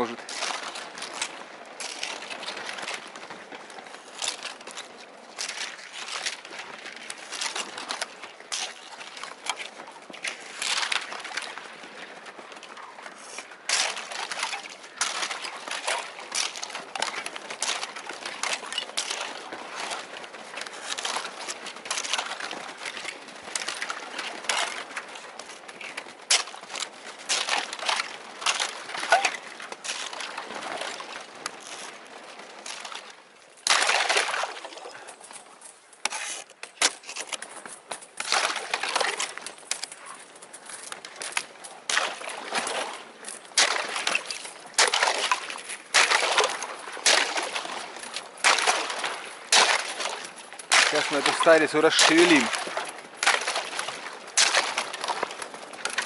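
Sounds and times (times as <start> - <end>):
thin ice cracking and crunching: 25.8 - 30.4, 33.6 - 35.4, 36.0 - 37.6, 38.2 - 40.2, 40.8 - 56.0.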